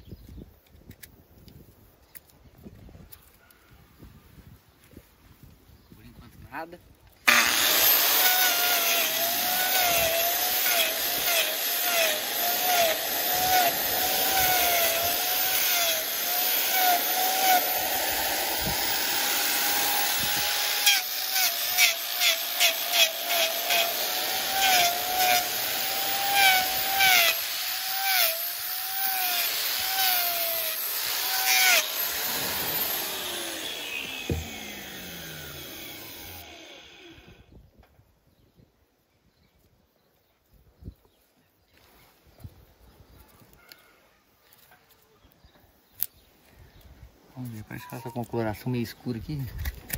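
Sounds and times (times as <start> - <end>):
angle grinder whining: 7.2 - 37.4
grinder disc scraping hoof: 7.3 - 37.0.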